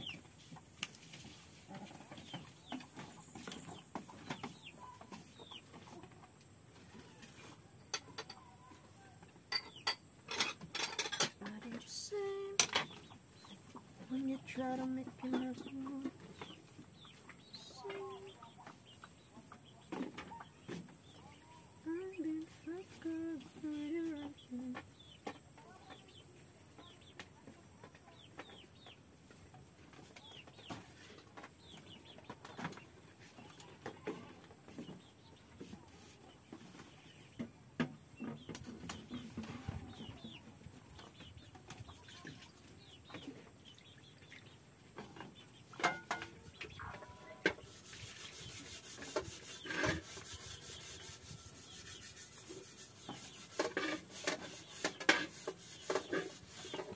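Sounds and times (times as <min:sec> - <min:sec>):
chickens clucking: 0:00.0 - 0:56.9
rasping scraping sound: 0:47.4 - 0:56.9.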